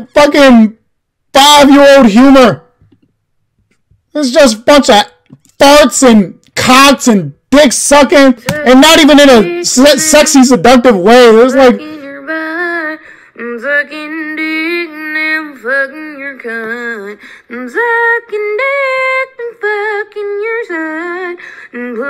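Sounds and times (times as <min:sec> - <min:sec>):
woman singing unaccompanied: 0:08.4 - 0:10.2, 0:11.6 - 0:22.0.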